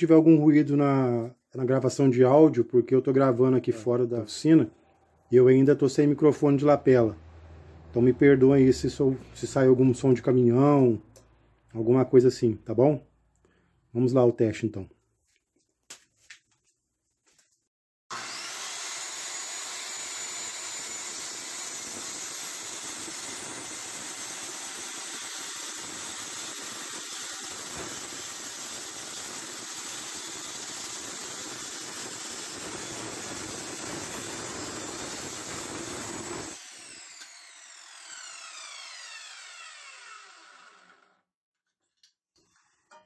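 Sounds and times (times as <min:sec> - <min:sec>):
circular saw cutting plywood: 0:18.1 - 0:41.2
saw blade winding down: 0:18.1 - 0:41.2.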